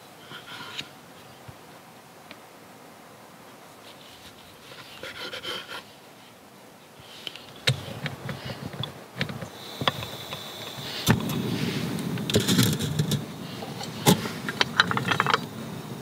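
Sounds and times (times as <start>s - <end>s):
knife scraping cutting board: 4.7s - 5.9s
gas hissing: 7.0s - 16.0s.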